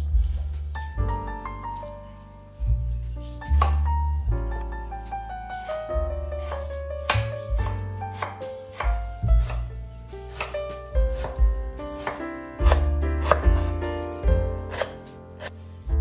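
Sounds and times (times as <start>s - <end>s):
background music with piano: 0.0s - 16.0s
knife chopping on wooden board: 3.5s - 3.9s, 6.4s - 9.7s, 10.3s - 13.8s, 14.7s - 15.6s.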